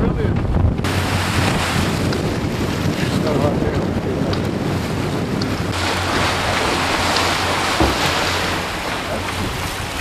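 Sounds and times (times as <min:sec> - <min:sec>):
wind buffeting microphone: 0:00.0 - 0:10.0
waves washing: 0:00.8 - 0:10.0.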